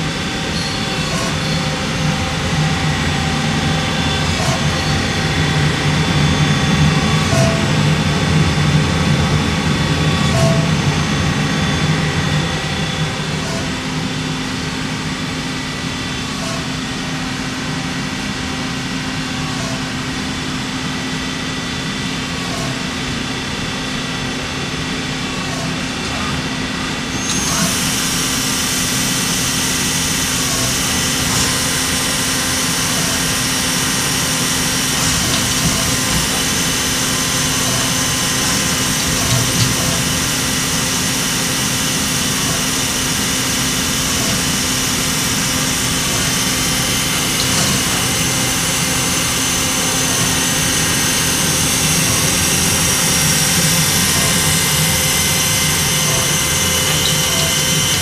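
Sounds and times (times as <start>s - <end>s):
lathe humming and whining: 0.0s - 58.0s.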